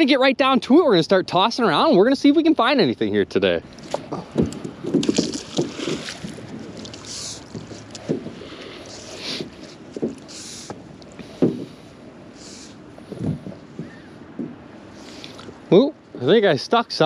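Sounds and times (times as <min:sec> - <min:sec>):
knocks and bumps on boat hull: 0:03.9 - 0:06.6, 0:11.4 - 0:11.8, 0:13.1 - 0:14.6
short hissing rushes: 0:10.2 - 0:10.7, 0:11.6 - 0:12.8.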